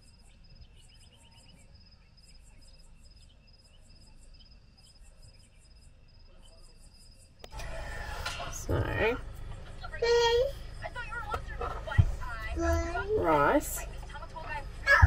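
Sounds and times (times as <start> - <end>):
pulsing insect trill: 0.0 - 9.2
crickets chirping: 0.0 - 15.0.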